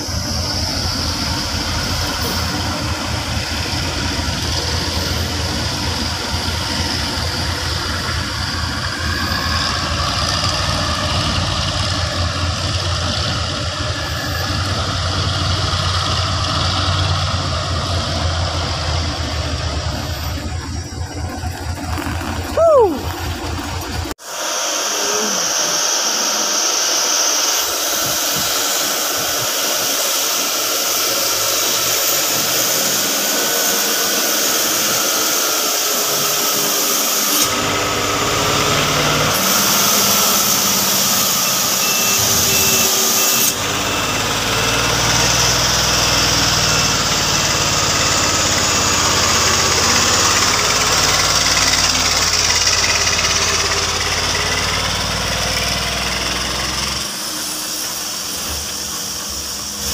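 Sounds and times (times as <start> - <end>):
deeper rumble: 0.0 - 24.2
truck engines revving: 0.0 - 59.9.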